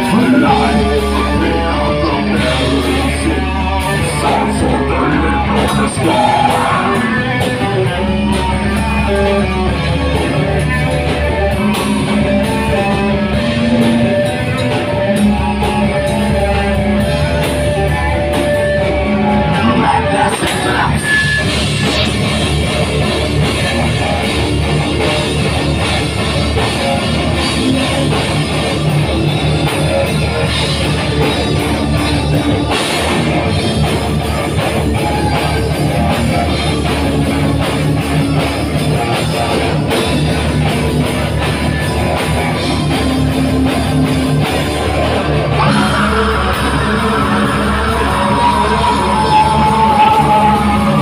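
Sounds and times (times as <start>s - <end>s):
vocals: 0.0s - 9.7s, 12.5s - 22.6s, 44.9s - 51.0s
heavy metal band playing live: 0.0s - 51.0s.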